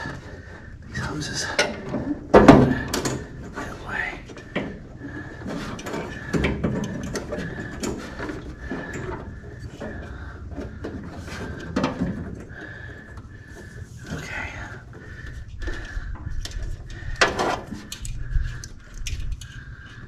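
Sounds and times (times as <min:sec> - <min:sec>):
heater box knocking and scraping: 0:01.6 - 0:03.6, 0:04.4 - 0:14.3, 0:15.0 - 0:18.2
clicks and bumps: 0:01.6 - 0:14.2, 0:15.0 - 0:20.0.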